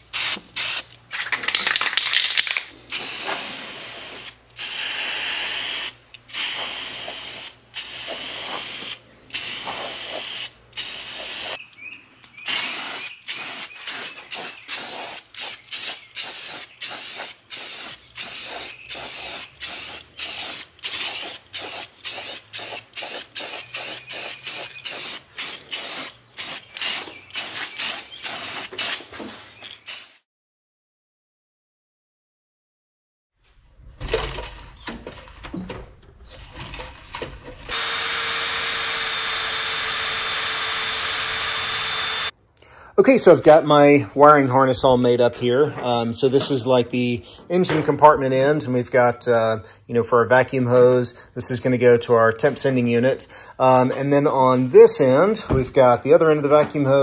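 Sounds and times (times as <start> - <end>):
aerosol spray can hissing: 2.9 - 11.6, 12.5 - 29.0, 29.9 - 30.2.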